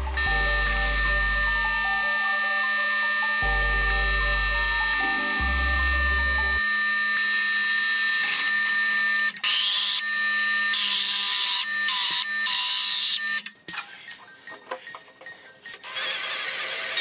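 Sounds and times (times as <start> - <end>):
background music: 0.0 - 6.6
hissing metal cutting noise: 0.0 - 8.4
drill press whine: 0.0 - 13.4, 15.8 - 17.0.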